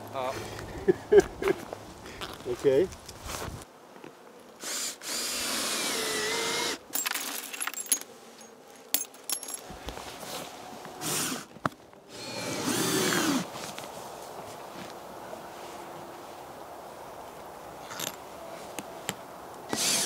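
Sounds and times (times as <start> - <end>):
cordless drill running: 4.6 - 6.8, 12.1 - 13.4, 19.7 - 20.0.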